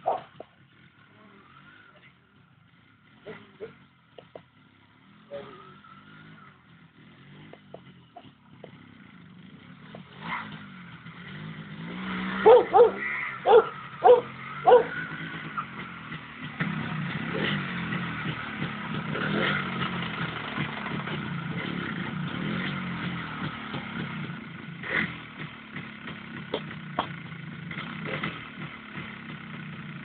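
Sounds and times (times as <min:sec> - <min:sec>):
dog barking: 0:00.0 - 0:00.4, 0:12.4 - 0:15.0
two-stroke engine running: 0:00.0 - 0:30.0.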